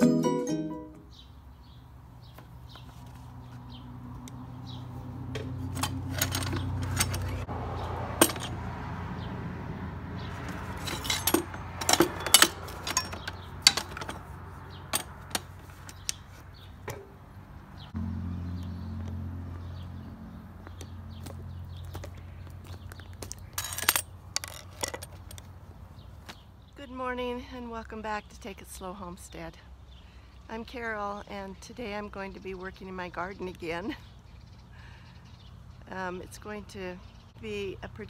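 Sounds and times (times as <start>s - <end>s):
garden hand tools clinking: 5.3s - 7.5s, 8.2s - 8.6s, 10.3s - 17.2s, 23.2s - 25.5s.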